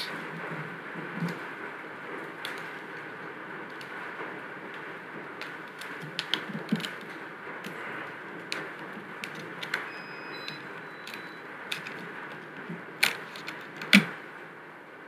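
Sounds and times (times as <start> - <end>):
fingers clicking on calculator keys: 8.4 - 14.1.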